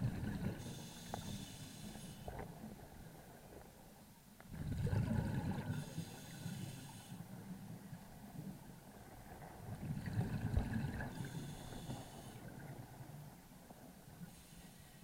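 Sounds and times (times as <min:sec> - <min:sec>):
faint ticks: 0:00.5 - 0:02.8, 0:05.6 - 0:08.5, 0:10.6 - 0:12.8
hissing breath through regulator: 0:00.6 - 0:02.3, 0:05.7 - 0:07.3, 0:11.1 - 0:12.5, 0:14.2 - 0:15.0.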